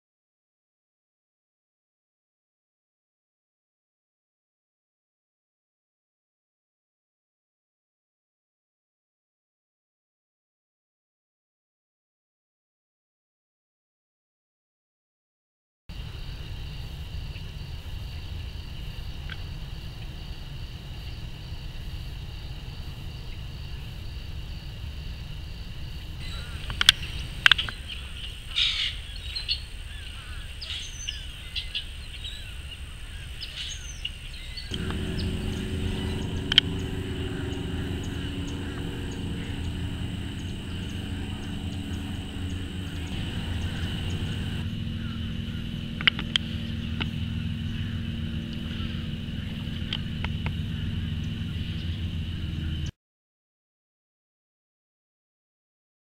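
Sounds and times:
high-pitched insect drone: 15.9 - 31.0, 34.7 - 52.9
low steady hum: 15.9 - 33.0, 34.5 - 52.9
short bird calls: 26.2 - 36.5.

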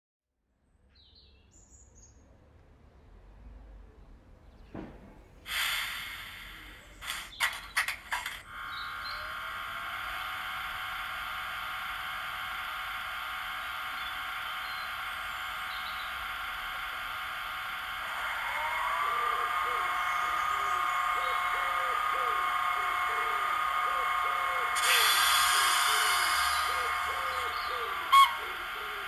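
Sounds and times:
model locomotive hiss: 5.3 - 29.0
electric hum: 5.5 - 29.0
rising whine: 5.5 - 29.0.

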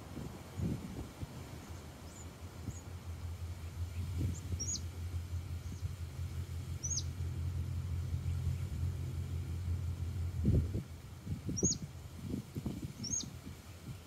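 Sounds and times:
steady low rumble: 0.0 - 14.0
bird chirps: 1.6 - 7.2, 11.5 - 11.9, 13.0 - 13.3.

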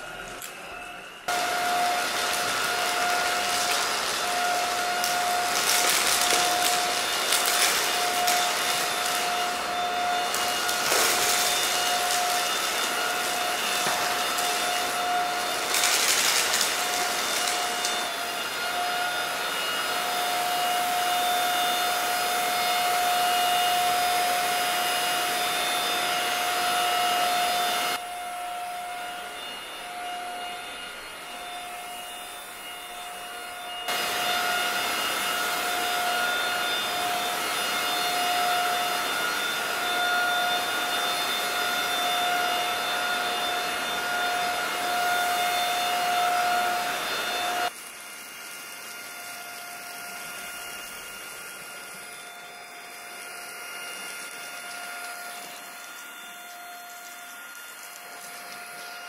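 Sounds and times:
vacuum cleaner motor whine: 0.0 - 59.0
cereal crackling into vacuum: 1.3 - 9.6, 10.2 - 18.1.

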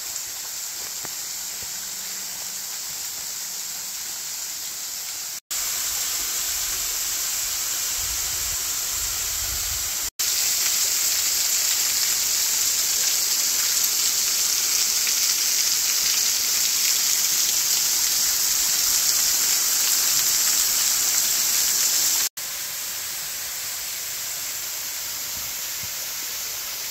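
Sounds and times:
waterfall splashing into pool: 10.0 - 26.9.

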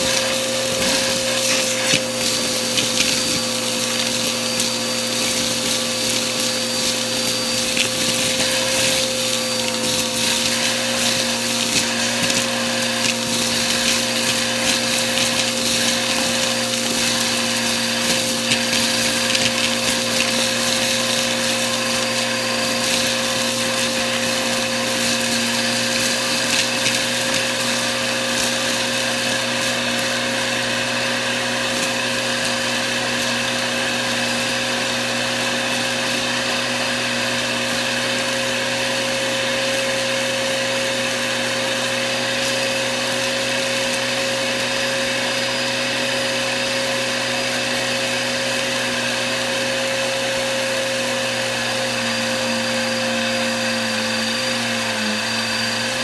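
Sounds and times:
debris rattling up vacuum hose: 0.0 - 36.3
vacuum motor whine: 0.0 - 56.0.

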